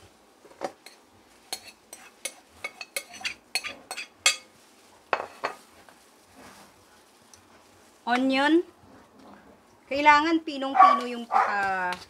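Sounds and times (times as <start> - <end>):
metal spoon clinking on plate and bowl: 0.9 - 4.5.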